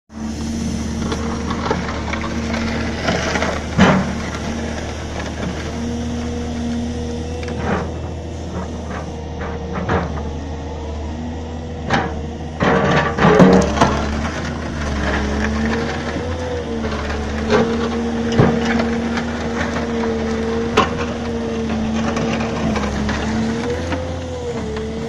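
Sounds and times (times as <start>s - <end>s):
excavator diesel engine running: 0.1s - 25.0s
metal clanks and scrapes: 0.4s - 6.4s, 7.4s - 10.3s, 11.8s - 24.9s.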